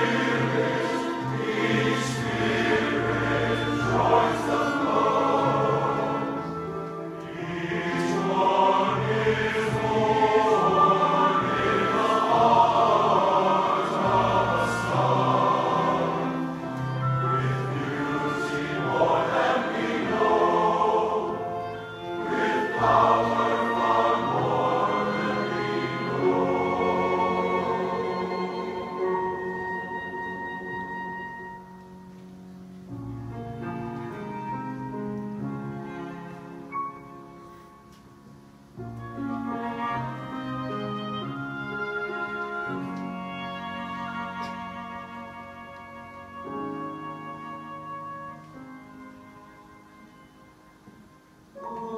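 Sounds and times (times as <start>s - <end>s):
men's chorus singing: 0.0s - 6.6s, 7.2s - 29.4s, 51.6s - 51.9s
instrumental passage: 0.0s - 51.9s.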